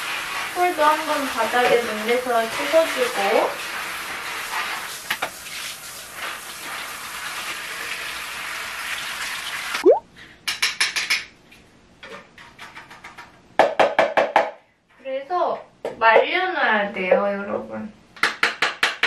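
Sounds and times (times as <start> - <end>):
shower spraying on tiled floor: 0.0 - 9.8.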